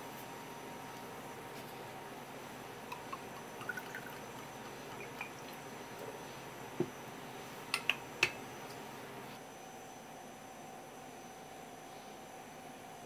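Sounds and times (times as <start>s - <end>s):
liquid pouring into cup: 2.9s - 5.8s.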